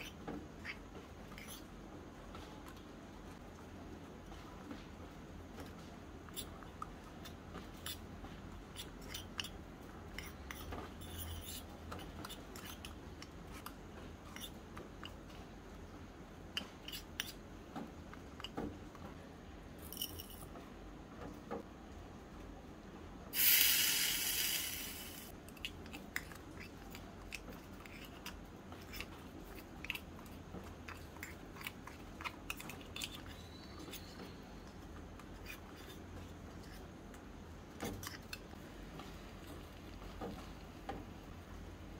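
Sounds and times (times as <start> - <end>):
burst of hiss: 23.4 - 25.3.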